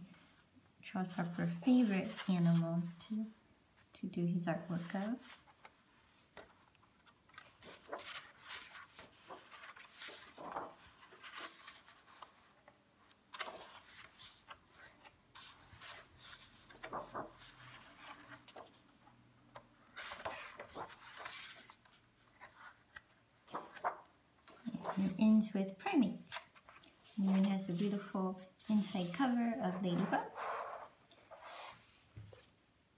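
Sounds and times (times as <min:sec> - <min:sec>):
book pages turning: 0:04.8 - 0:25.4, 0:26.4 - 0:32.6.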